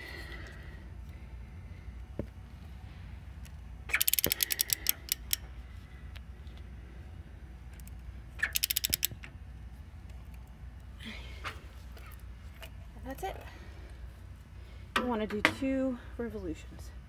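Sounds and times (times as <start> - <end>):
ratchet handle clicking: 3.9 - 5.4, 7.8 - 9.3.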